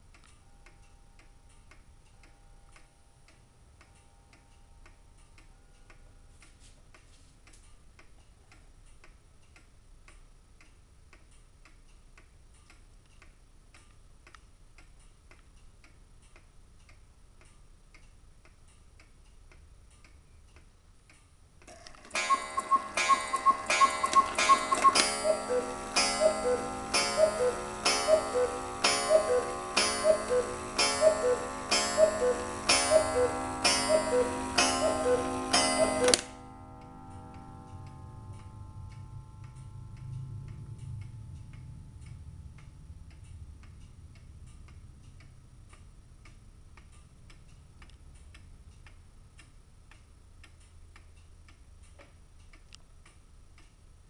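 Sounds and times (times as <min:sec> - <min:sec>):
clock ticking: 0:00.0 - 0:54.0
cuckoo clock calls: 0:21.7 - 0:39.2
ringing tones: 0:21.7 - 0:44.4
quail clock calls: 0:22.0 - 0:36.5.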